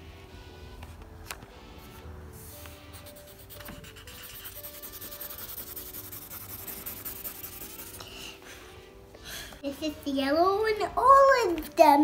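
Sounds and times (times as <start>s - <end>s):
background music: 0.0s - 12.0s
colouring tools scribbling on paper: 2.9s - 8.1s.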